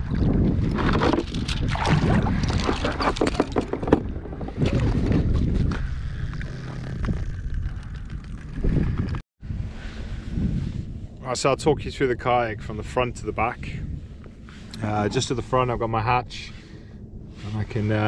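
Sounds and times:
water splashing around kayak: 0.0 - 6.0
wind buffeting microphone: 0.0 - 18.0.

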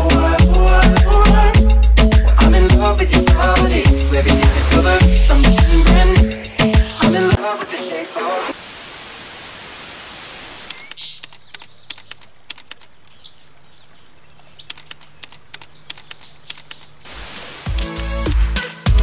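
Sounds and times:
outdoor ambience: 4.2 - 19.0
tv static hiss: 6.3 - 10.9, 17.0 - 18.5
sharp clicks: 10.6 - 13.0, 14.6 - 17.1.

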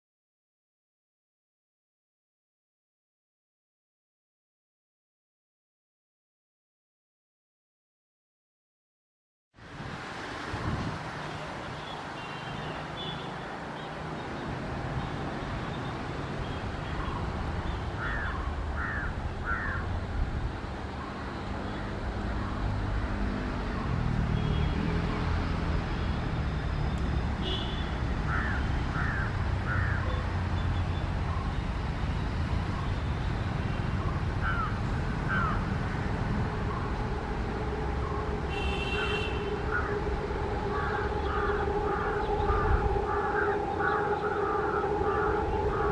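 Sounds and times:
birds calling: 15.8 - 19.9, 28.2 - 31.6, 33.9 - 45.9
steady hum: 35.8 - 45.9
trains rumbling: 35.8 - 45.9.

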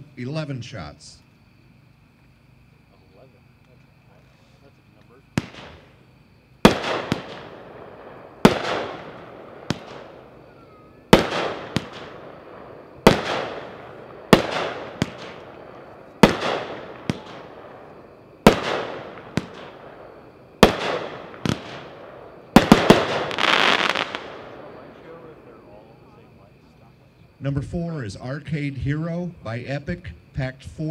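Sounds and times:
small firework pops: 4.9 - 5.9, 9.7 - 10.1, 14.4 - 17.4, 20.6 - 21.9
fireworks bangs with rumbling echo: 5.1 - 6.0, 6.6 - 25.6.

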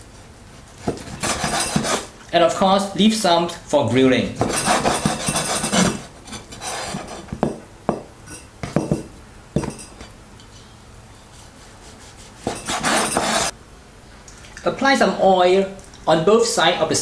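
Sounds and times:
blade knocking on cutting board: 7.3 - 9.8.

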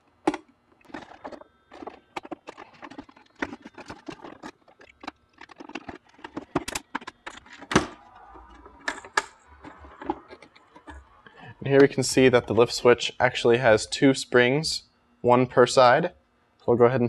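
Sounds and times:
plastic shell clicks and creaks: 0.3 - 12.0.

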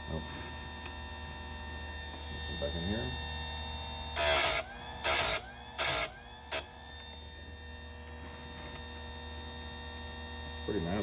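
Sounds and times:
motor humming: 0.0 - 11.0
chain sharpener grinding: 4.1 - 6.7.

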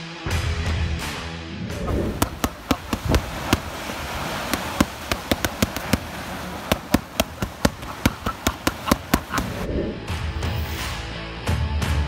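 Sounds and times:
waves breaking on shore: 1.8 - 9.7
boxing gloves smacking mitts: 2.1 - 9.6.

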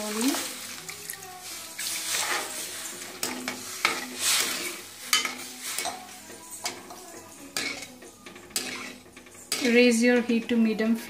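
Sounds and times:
water sizzling in hot pan: 0.0 - 8.0
ladle scraping and knocking pan: 0.4 - 11.0.

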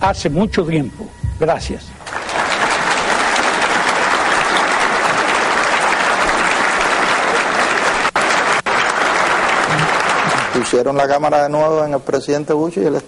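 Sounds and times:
audience applause: 2.0 - 11.5.

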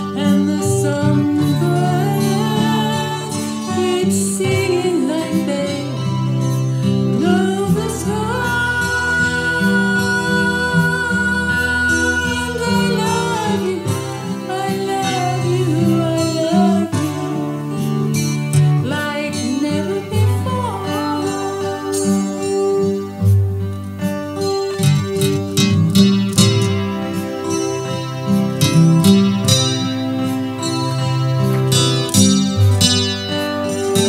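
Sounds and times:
woman singing: 0.0 - 23.2
acoustic guitar: 0.0 - 34.0.

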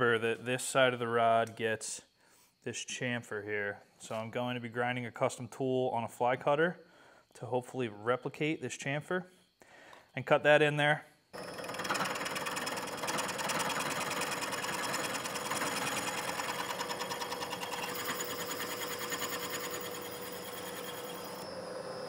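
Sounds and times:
milling machine hum: 11.4 - 22.0.

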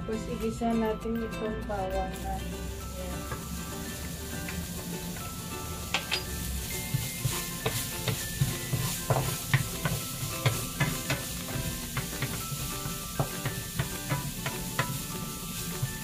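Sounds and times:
garlic sizzling in frying pan: 2.1 - 16.0
wooden spatula scraping pan: 6.2 - 16.0.

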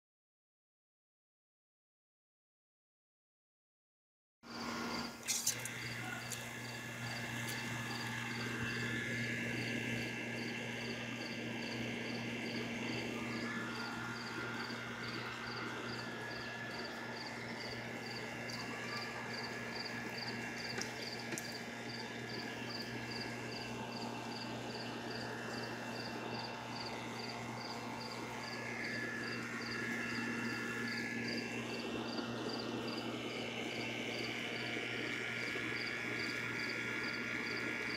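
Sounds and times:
water pump humming: 4.5 - 37.9
sprayer hissing water: 5.0 - 8.8.

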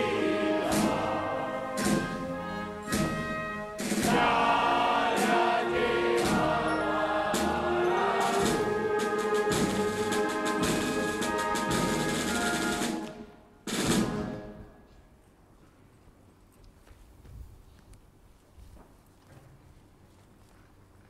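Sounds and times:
choir singing a hymn: 0.0 - 13.1
drum strokes: 0.0 - 14.6
orchestral band: 0.0 - 14.9.

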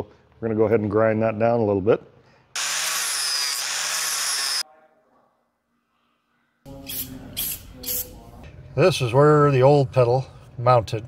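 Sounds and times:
power grinder grinding metal: 2.6 - 4.6.

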